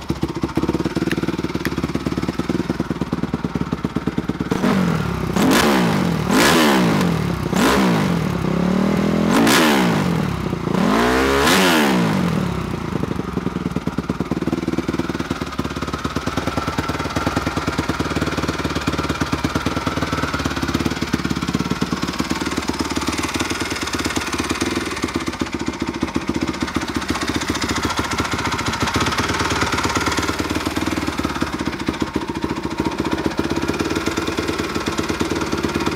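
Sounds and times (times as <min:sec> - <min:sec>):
motorcycle engine revving and idling: 0:00.0 - 0:35.9.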